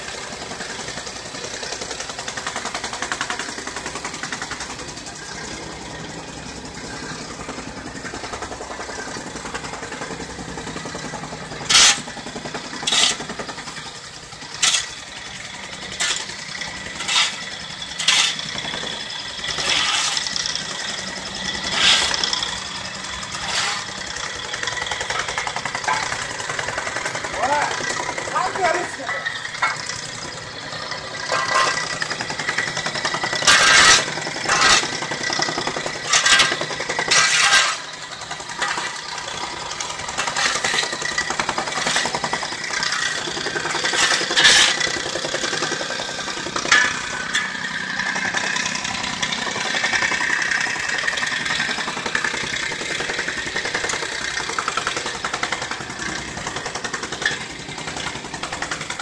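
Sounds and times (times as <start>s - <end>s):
excavator diesel engine running: 0.0s - 59.0s
shovels scraping on pavement: 11.6s - 12.2s, 12.8s - 13.8s, 14.4s - 30.3s, 31.2s - 47.6s.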